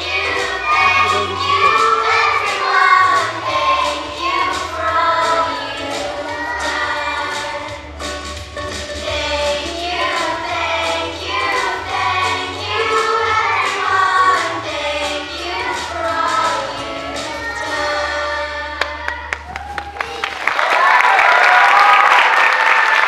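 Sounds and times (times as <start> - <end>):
people clapping: 0.0 - 5.8, 18.8 - 23.0
children singing: 0.0 - 19.4.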